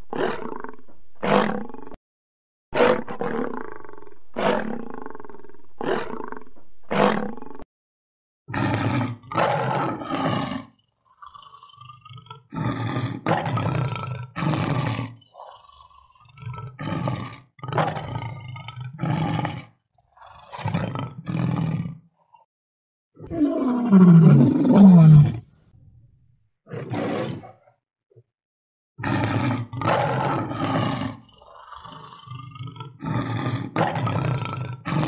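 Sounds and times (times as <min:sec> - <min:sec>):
lion roaring: 0:00.1 - 0:01.9, 0:02.8 - 0:07.6, 0:08.5 - 0:22.0, 0:23.2 - 0:25.5, 0:26.7 - 0:27.8, 0:29.0 - 0:35.0.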